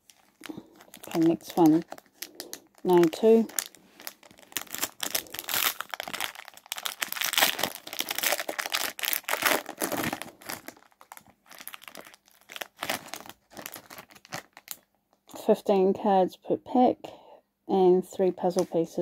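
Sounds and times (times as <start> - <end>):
foil wrapper crinkling and tearing: 0.0 - 14.9.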